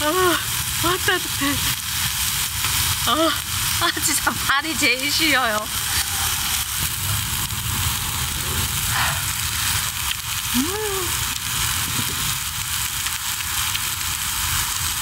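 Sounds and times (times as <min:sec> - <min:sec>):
meat sizzling on a grill pan: 0:00.0 - 0:15.0
person humming: 0:10.5 - 0:11.3.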